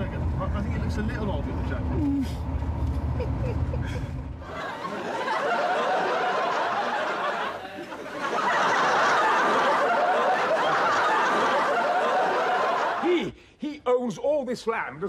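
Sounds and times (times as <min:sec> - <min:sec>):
audience laughing: 0:03.1 - 0:13.3.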